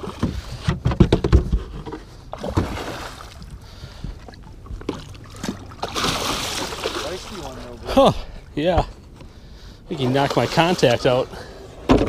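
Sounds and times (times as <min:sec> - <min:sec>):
fish thrashing in water: 0:02.3 - 0:07.6.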